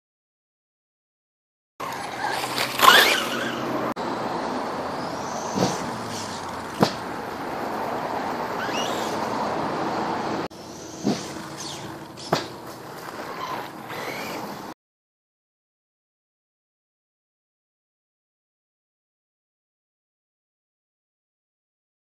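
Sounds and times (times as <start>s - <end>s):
electric motor whining: 1.8s - 3.8s
sharp knocks: 6.8s - 7.1s.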